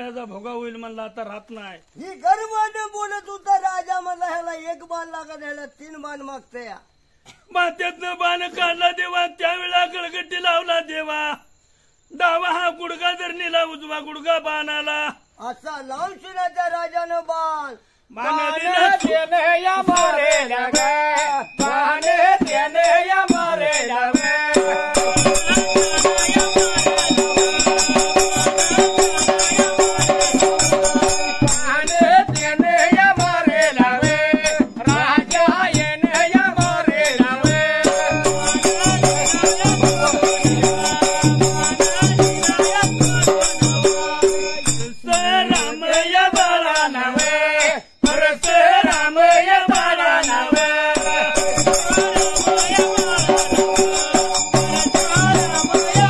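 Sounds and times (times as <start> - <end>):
men singing: 18.1 - 56.0
hand cymbals clashing: 19.8 - 56.0
drum beating: 21.6 - 23.6, 24.2 - 47.4, 48.0 - 56.0.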